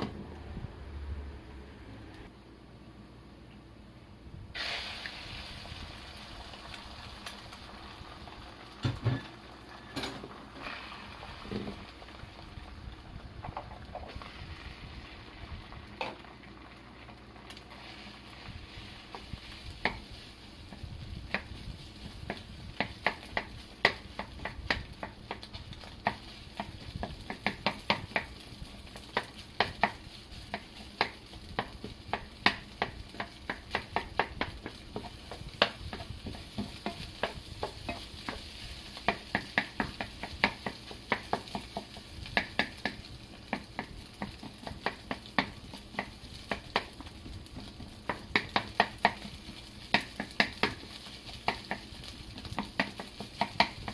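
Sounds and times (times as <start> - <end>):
faint sizzle: 0.0 - 53.9
wooden spatula scraping frying pan: 17.6 - 53.9.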